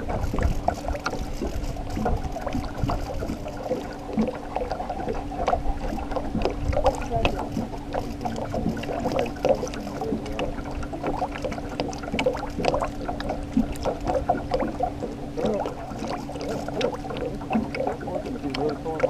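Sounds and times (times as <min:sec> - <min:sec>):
low hum: 0:00.0 - 0:19.0
water lapping against boat hull: 0:00.0 - 0:19.0.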